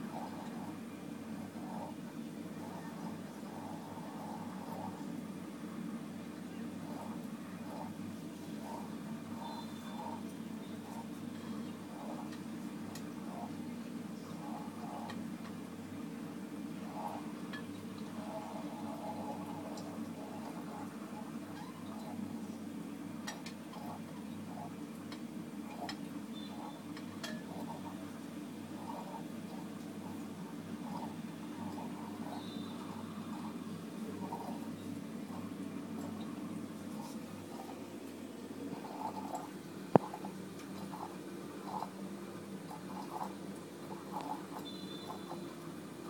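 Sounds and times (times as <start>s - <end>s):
water bubbling and gurgling: 0.0s - 5.3s, 6.6s - 46.0s
steady low hum: 0.0s - 46.0s
coffee maker bubbling ticks and pops: 23.2s - 28.0s, 38.8s - 42.0s, 42.6s - 45.5s.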